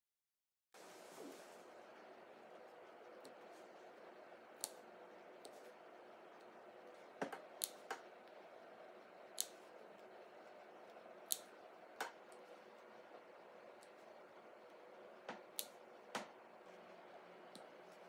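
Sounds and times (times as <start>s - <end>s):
faint room hum: 0.8s - 18.0s
scissors snipping: 4.6s - 4.8s, 7.2s - 8.0s, 9.4s - 9.6s, 11.3s - 12.2s, 15.3s - 16.3s.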